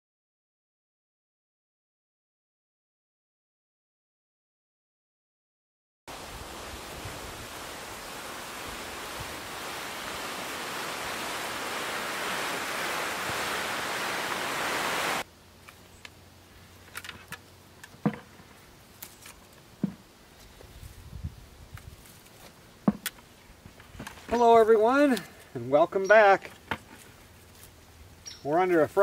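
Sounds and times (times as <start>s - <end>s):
rustling of tomato vines: 6.1s - 29.0s
steady rushing hiss: 6.1s - 29.0s.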